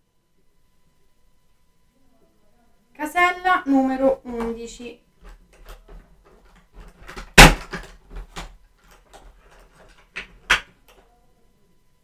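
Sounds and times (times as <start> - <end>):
sharp knock: 7.2 - 7.8.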